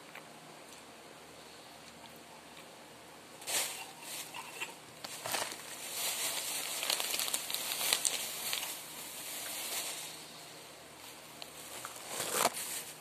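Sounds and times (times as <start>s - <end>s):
plastic bag crinkling: 3.4s - 10.2s, 11.0s - 13.0s.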